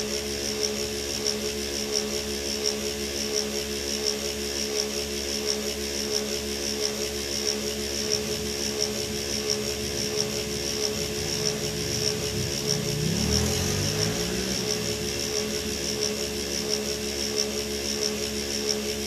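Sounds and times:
diesel engine idling: 8.1 - 16.6.

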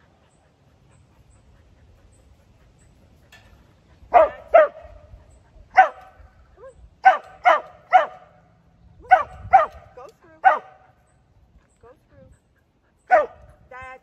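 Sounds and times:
dog barking: 4.1 - 5.0, 5.7 - 6.2, 7.0 - 8.4, 9.1 - 9.8, 10.4 - 10.8, 13.1 - 13.4.

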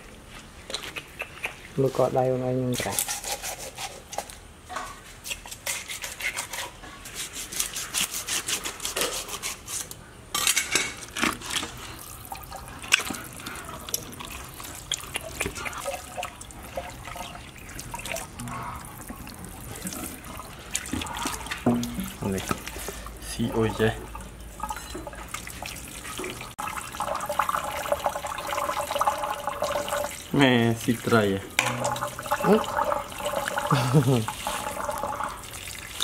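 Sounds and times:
knife scraping fish skin: 2.8 - 4.3, 5.2 - 10.0
tap running into steel sink: 21.6 - 22.6.

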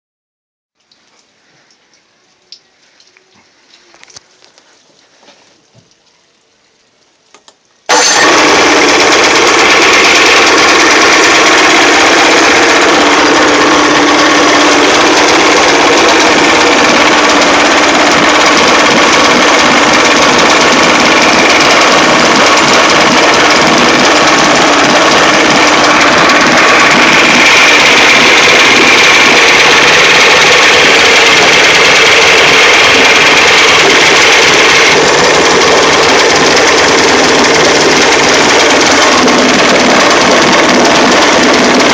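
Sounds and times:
outboard motor running: 7.9 - 41.9.

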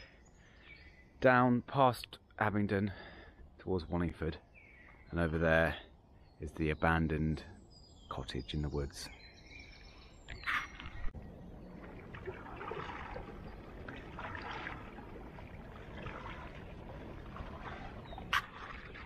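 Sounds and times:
water trickling off paddle: 9.8 - 19.0
kayak paddle strokes in water: 10.4 - 19.0.

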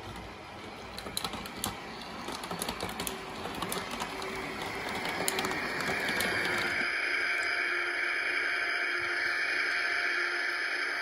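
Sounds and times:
wheels clicking on rails: 0.0 - 6.9.

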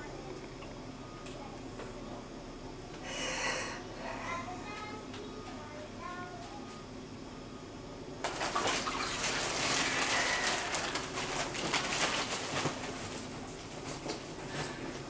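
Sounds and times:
water splashing and dripping: 8.3 - 10.0.

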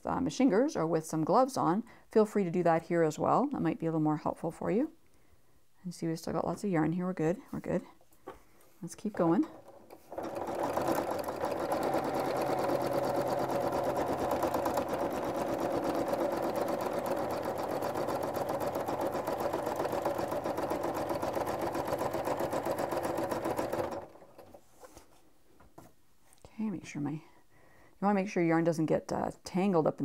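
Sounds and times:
sewing machine running: 9.5 - 24.6.

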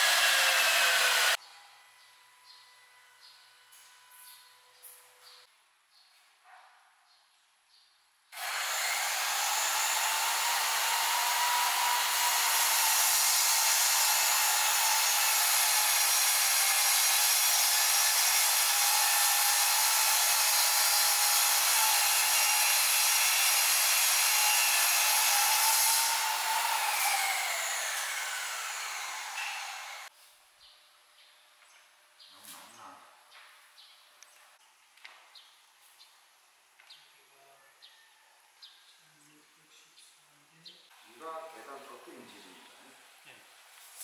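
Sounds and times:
miter saw cutting wood: 0.0 - 1.4, 8.4 - 30.1.

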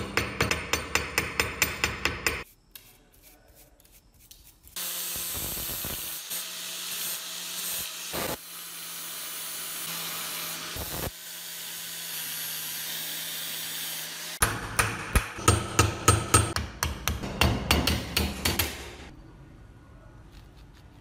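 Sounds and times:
hammer striking metal punch: 0.0 - 2.4, 14.4 - 19.1
angle grinder grinding metal: 4.7 - 14.4.

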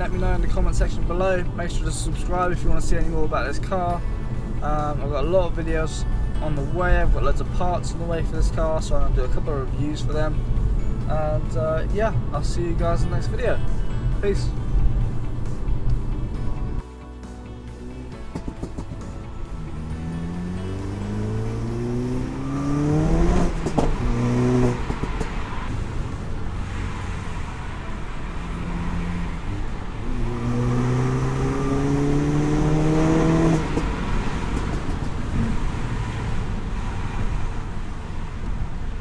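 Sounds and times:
road noise: 0.0 - 39.0
car engine accelerating: 17.6 - 39.0.

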